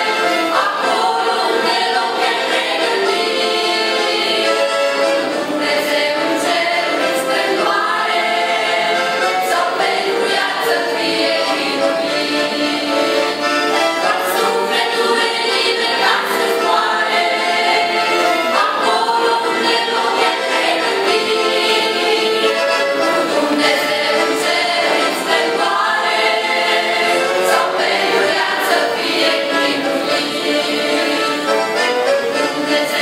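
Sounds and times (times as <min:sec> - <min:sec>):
accordion: 0:00.0 - 0:33.0
choir singing a hymn: 0:00.0 - 0:33.0.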